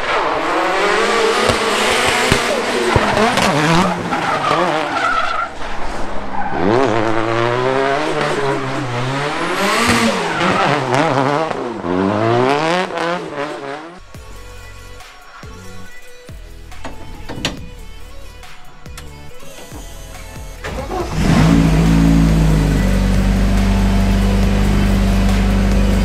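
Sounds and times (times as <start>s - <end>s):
car engine revving: 0.0s - 14.1s, 20.6s - 26.0s
tyre squeal: 1.5s - 9.0s.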